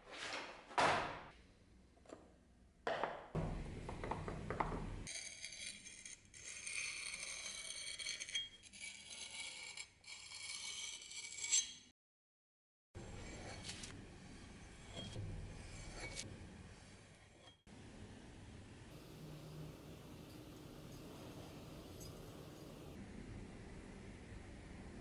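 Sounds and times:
sharpening stone grinding on steel: 0:05.1 - 0:11.9, 0:14.6 - 0:16.3, 0:19.0 - 0:23.0.

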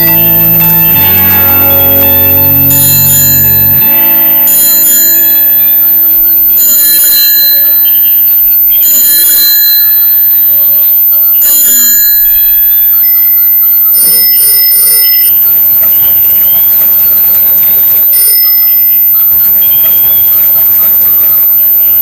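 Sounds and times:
tinny electronic toy tune: 0:00.0 - 0:07.0.

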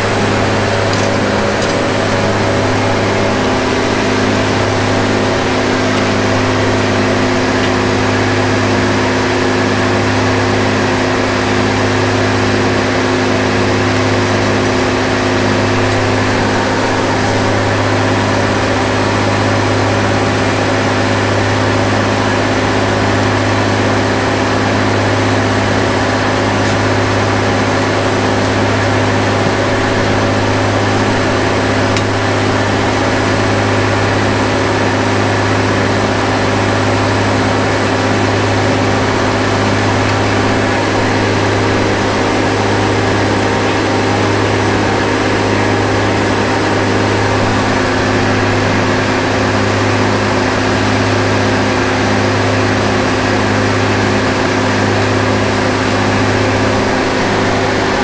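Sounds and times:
sawmill engine drone: 0:00.0 - 0:58.0.

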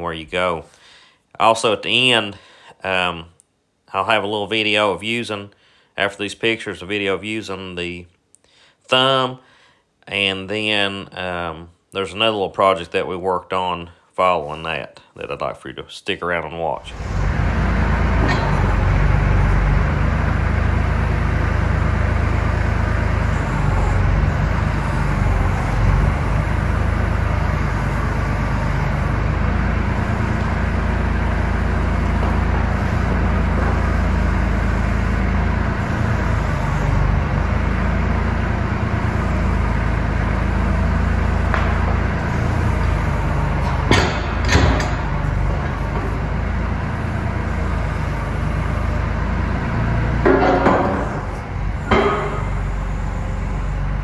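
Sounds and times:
diesel engine running: 0:16.8 - 0:54.0.

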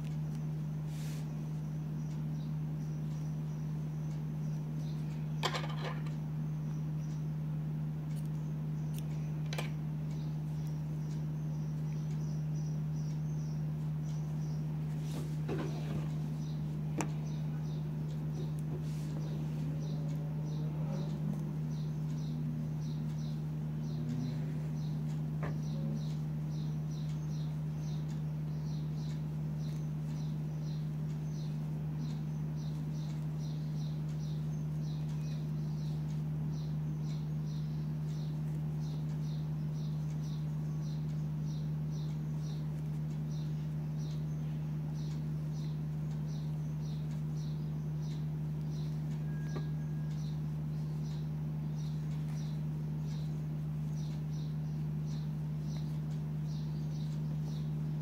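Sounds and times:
steady low hum: 0:00.0 - 0:58.0
faint high chirp: 0:15.7 - 0:58.0.

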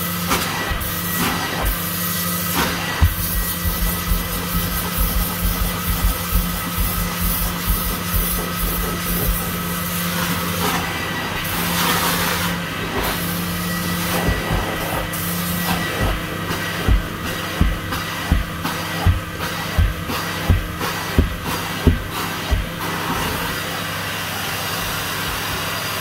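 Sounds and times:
vacuum motor hiss and whine: 0:00.0 - 0:26.0
dull low thumps: 0:16.8 - 0:22.7.

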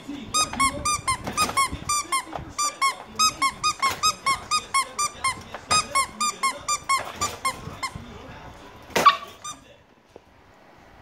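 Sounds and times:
squeaky dog toy squeaking: 0:00.3 - 0:08.0, 0:08.9 - 0:09.7.

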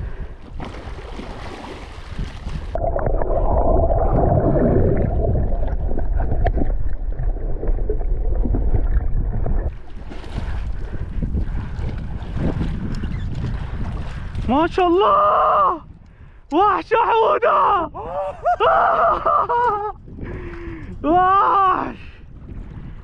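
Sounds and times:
underwater churning and bubbling: 0:00.0 - 0:14.4
wind on microphone: 0:00.0 - 0:16.5, 0:17.8 - 0:23.0
water splashing: 0:00.5 - 0:14.8.

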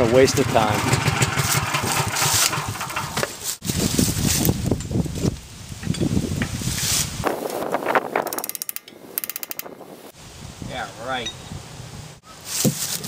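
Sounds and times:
ratchet wrench clicking: 0:08.3 - 0:09.8.

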